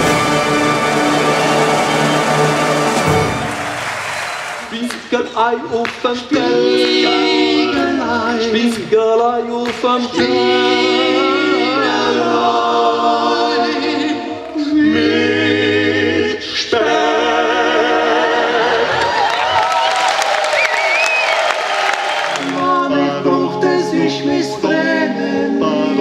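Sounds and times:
male vocal group singing in harmony: 0:04.7 - 0:19.2, 0:22.4 - 0:26.0.

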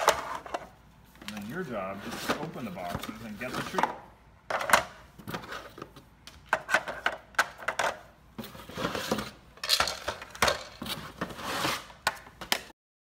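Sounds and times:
plastic pieces clicking and clacking: 0:09.6 - 0:10.8.

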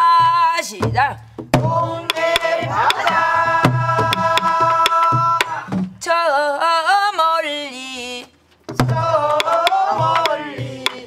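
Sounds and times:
barrel drums beating: 0:00.0 - 0:06.0, 0:08.7 - 0:11.0
single voice singing: 0:01.6 - 0:11.0
voices singing folk song: 0:01.6 - 0:11.0.

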